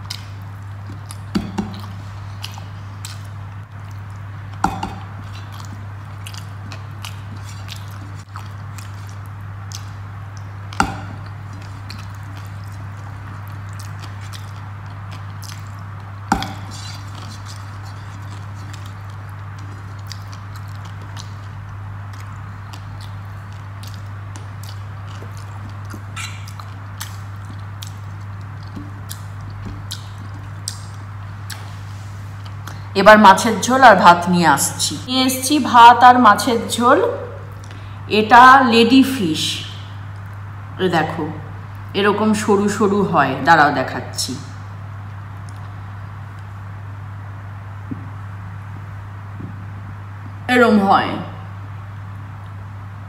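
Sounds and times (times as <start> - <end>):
wet chewing and finger-licking: 0.0 - 31.8, 32.4 - 32.8, 45.1 - 46.6
steady low hum: 0.0 - 53.0.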